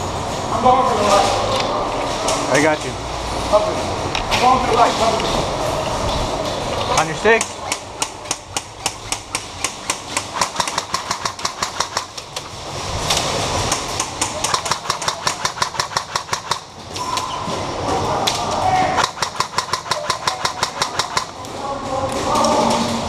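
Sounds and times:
airsoft guns firing in bursts: 0:07.9 - 0:12.4, 0:13.6 - 0:16.8, 0:19.0 - 0:21.4.

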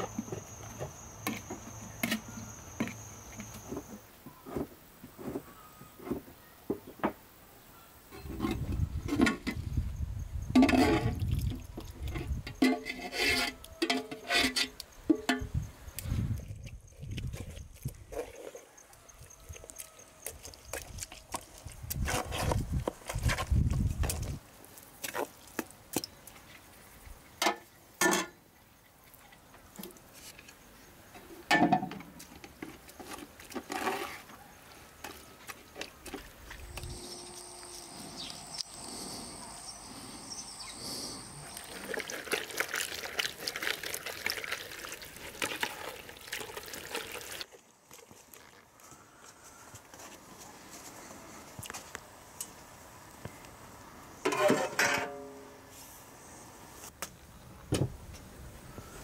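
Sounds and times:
water pouring and splashing: 0:10.6 - 0:12.4, 0:19.5 - 0:27.1, 0:41.4 - 0:48.9.

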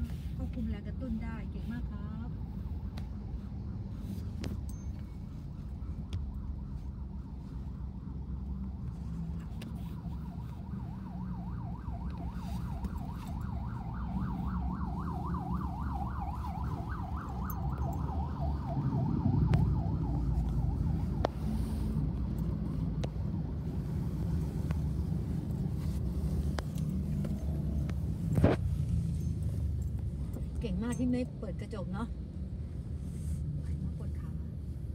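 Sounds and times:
car engine and road rumble: 0:00.0 - 0:34.9
ambulance siren wailing: 0:01.8 - 0:29.5.

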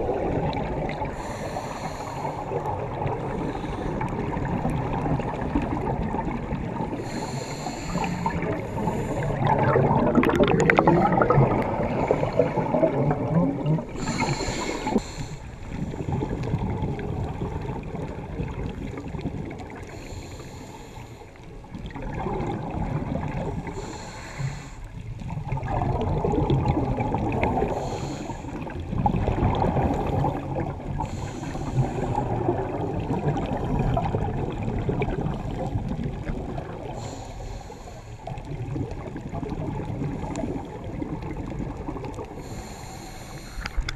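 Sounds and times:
exhaled air bubbling: 0:00.0 - 0:43.9
regulator inhale hiss: 0:01.0 - 0:02.6, 0:03.4 - 0:04.2, 0:06.9 - 0:09.6, 0:13.9 - 0:16.1, 0:19.8 - 0:21.5, 0:23.6 - 0:25.0, 0:27.6 - 0:28.8, 0:31.0 - 0:32.4, 0:36.8 - 0:38.4, 0:42.3 - 0:43.9.

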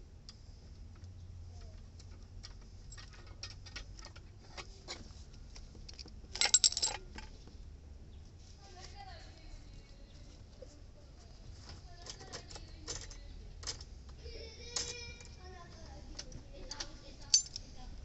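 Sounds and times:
small metal clicks: 0:00.3 - 0:05.0, 0:05.8 - 0:07.3, 0:11.9 - 0:15.4, 0:16.0 - 0:17.7
metal jangling rattle: 0:02.8 - 0:04.2, 0:06.4 - 0:07.1, 0:16.2 - 0:17.8.

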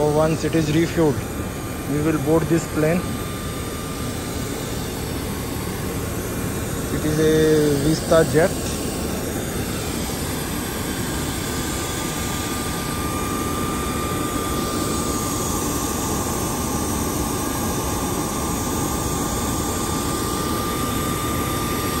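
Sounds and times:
machinery low rush: 0:00.0 - 0:15.6
thin high whine: 0:00.0 - 0:22.0.

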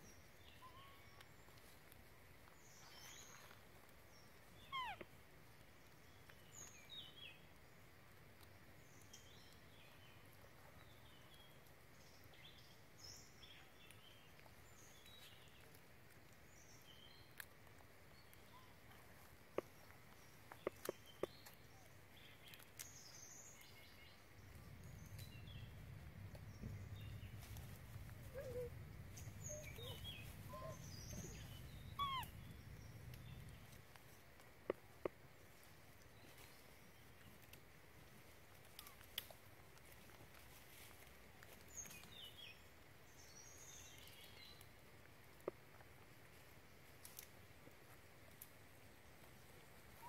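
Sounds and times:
faint bird chirps: 0:04.6 - 0:05.1, 0:28.2 - 0:33.8
low rumble: 0:24.4 - 0:33.7.

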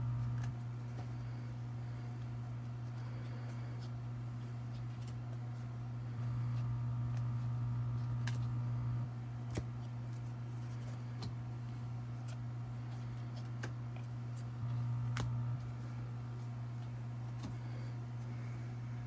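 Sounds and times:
steady low hum: 0:00.0 - 0:19.0
cards clicking as flipped: 0:07.1 - 0:08.6, 0:13.3 - 0:15.7.

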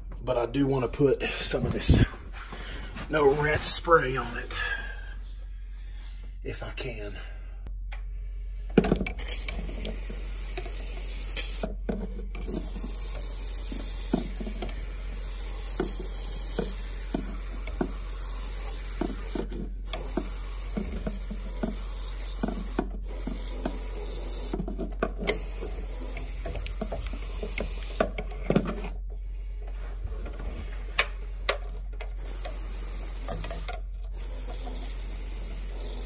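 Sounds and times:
hissing spray: 0:09.2 - 0:11.7.

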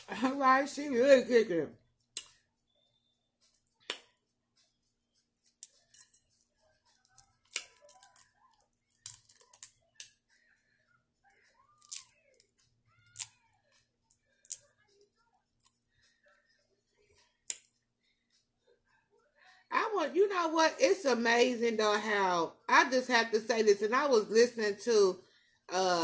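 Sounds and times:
shrimp shells cracking: 0:07.0 - 0:10.1, 0:11.7 - 0:13.4.

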